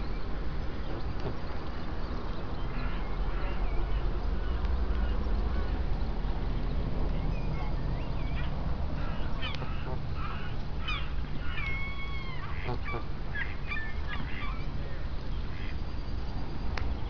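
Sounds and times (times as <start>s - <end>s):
low steady rumble: 0.0s - 17.0s
waterfowl honking and squawking: 8.4s - 14.6s.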